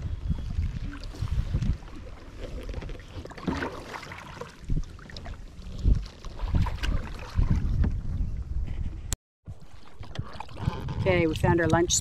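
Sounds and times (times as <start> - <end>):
wind rumbling on microphone: 0.0 - 3.6, 4.5 - 12.0
paddles splashing water: 0.1 - 8.2, 9.5 - 12.0.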